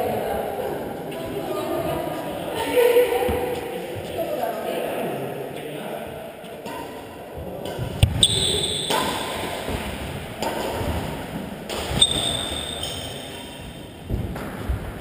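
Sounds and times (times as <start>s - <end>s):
shuffling footsteps: 0.9s - 4.6s
racket hitting shuttlecock: 7.6s - 14.9s
shoes squeaking on court floor: 7.8s - 9.8s, 11.8s - 14.5s.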